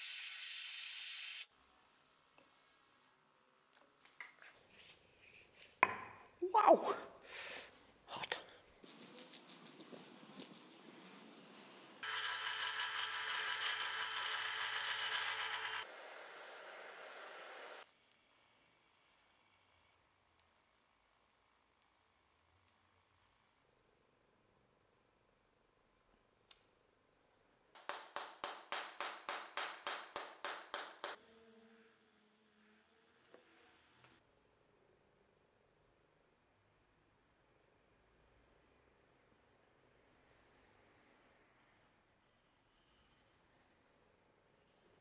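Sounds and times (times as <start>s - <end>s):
drill press boring into wood: 12.0s - 15.9s.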